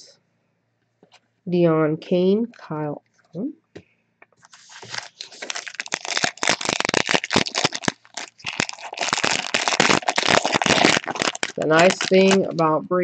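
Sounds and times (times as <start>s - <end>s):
foil wrapper crinkling: 4.4s - 12.6s.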